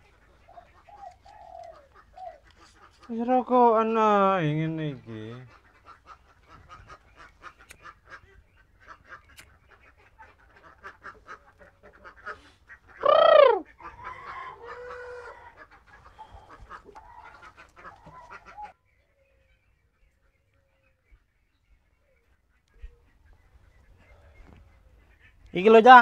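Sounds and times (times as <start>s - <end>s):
fowl clucking: 0.0s - 3.7s, 5.0s - 18.8s
loud squawk: 12.3s - 15.4s.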